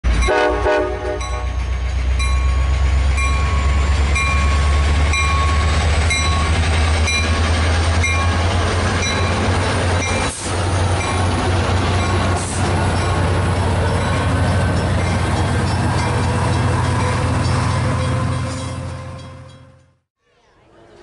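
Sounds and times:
train rumbling: 0.0 - 20.1
locomotive bell ringing: 0.1 - 20.0
train horn blast: 0.2 - 1.6.

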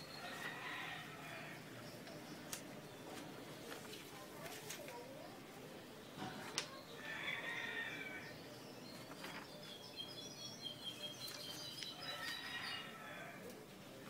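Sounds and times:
birds chirping: 0.0 - 14.0
magazine pages rustling: 3.2 - 5.0, 8.9 - 9.8.

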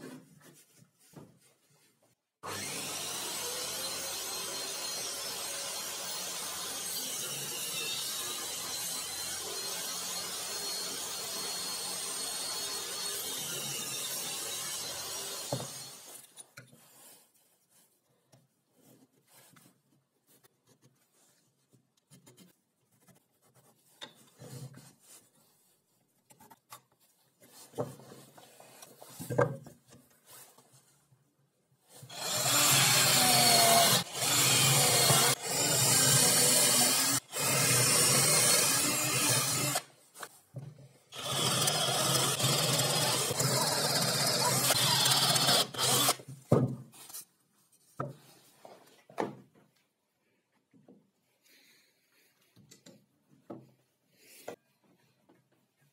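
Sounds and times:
power drill boring into wood: 2.4 - 16.2, 32.1 - 39.9, 41.2 - 46.2.

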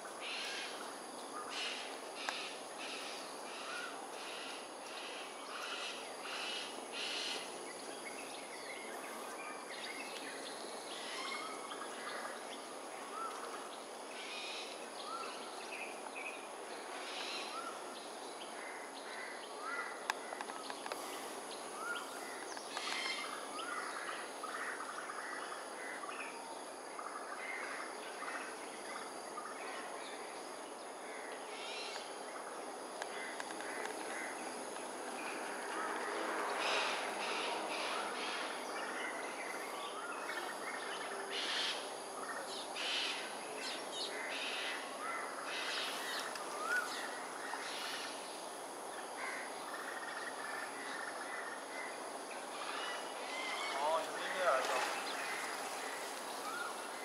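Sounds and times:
birds calling: 33.0 - 57.0.

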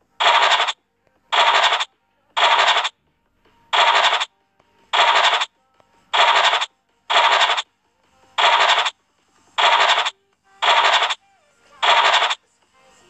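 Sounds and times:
scratch-card scratching effect: 0.2 - 0.8, 1.4 - 2.9, 3.8 - 4.3, 5.0 - 5.5, 6.2 - 7.6, 8.4 - 8.9, 9.6 - 11.2, 11.8 - 12.4.

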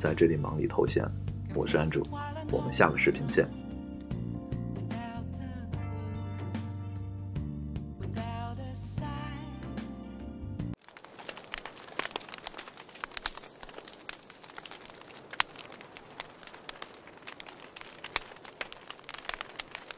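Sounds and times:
background music: 0.0 - 10.8
fire crackling and popping: 10.7 - 19.9.

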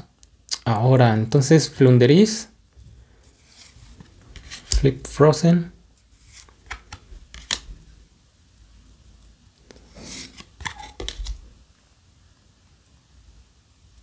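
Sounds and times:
card sliding off another card: 3.4 - 4.9, 6.2 - 7.6, 9.7 - 11.4.

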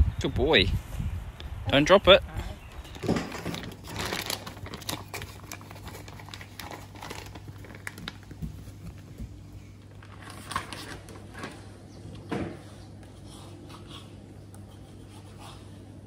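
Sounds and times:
plastic bag crinkling: 2.8 - 8.8.

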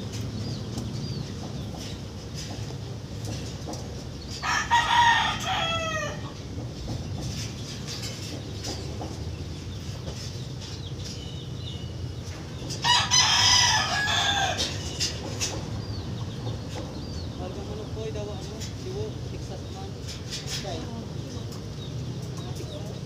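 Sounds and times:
low background rumble: 0.0 - 23.0
rooster crowing: 4.4 - 6.4, 12.8 - 14.8.

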